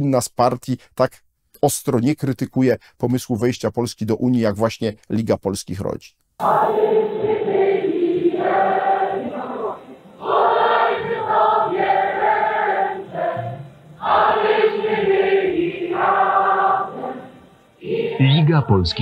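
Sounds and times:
muffled choir singing: 6.4s - 19.0s.

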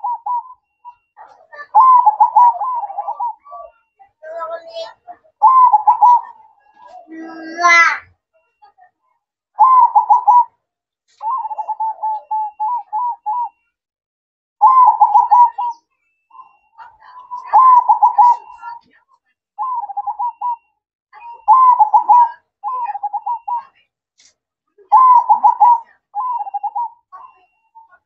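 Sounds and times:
dove cooing: 0.0s - 7.9s, 9.6s - 10.5s, 11.2s - 13.6s, 14.6s - 18.8s, 19.6s - 23.7s, 24.9s - 27.7s.

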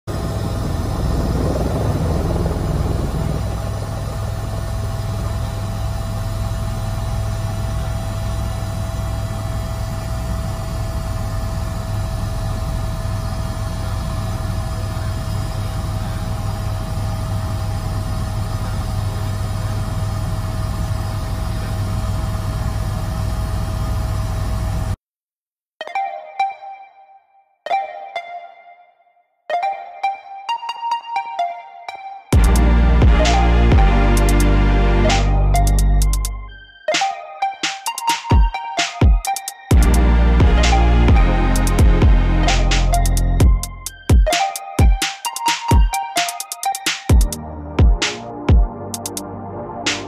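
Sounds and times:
helicopter rotor and engine drone: 0.0s - 25.0s, 32.3s - 47.4s
high turbine whine: 0.1s - 25.0s, 32.3s - 50.0s.

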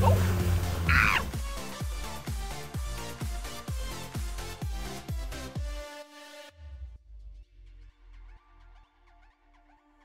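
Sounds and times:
quiet music with bass beat: 0.0s - 6.0s.

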